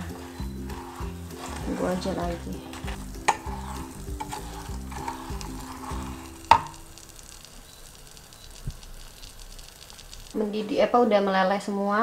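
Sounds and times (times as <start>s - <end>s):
spoon knocking: 0.0s - 6.9s
wooden spoon scraping saucepan: 0.0s - 6.9s.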